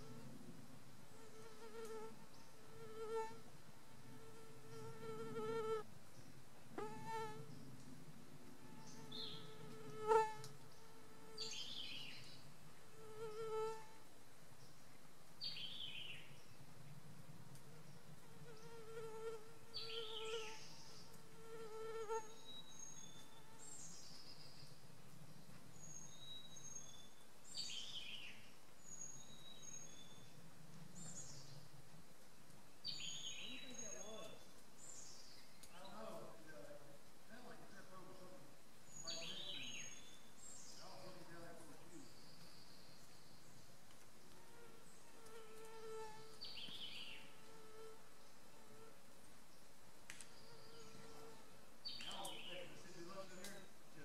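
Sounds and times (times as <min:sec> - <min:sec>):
flying insect buzzing: 0:01.1 - 0:03.4, 0:04.0 - 0:05.9, 0:08.6 - 0:11.8, 0:12.9 - 0:14.0, 0:17.8 - 0:22.4, 0:44.4 - 0:49.1.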